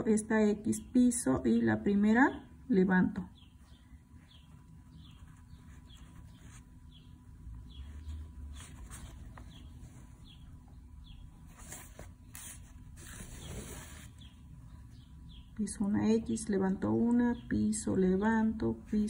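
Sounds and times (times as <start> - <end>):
bird chirping: 3.1 - 12.4, 13.0 - 19.0.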